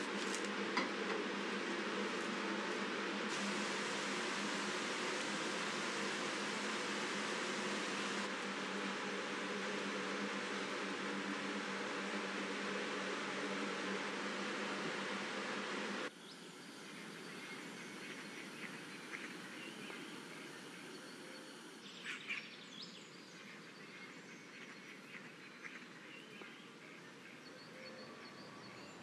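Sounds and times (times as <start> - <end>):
fan-like hum with hiss: 0.0 - 27.4
river water rushing over weir: 3.3 - 9.5.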